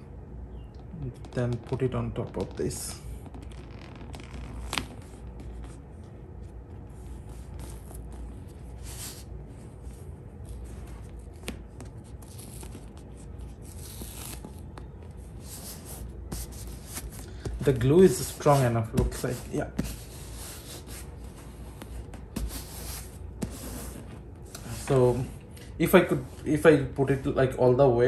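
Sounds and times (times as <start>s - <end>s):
fingers rubbing leather patch: 3.2s - 5.7s.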